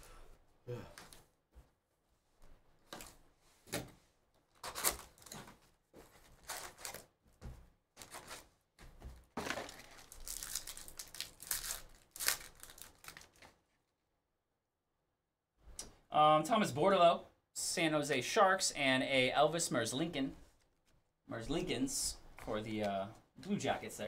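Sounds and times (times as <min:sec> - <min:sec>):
foil packs tearing and crinkling: 0:09.4 - 0:13.6.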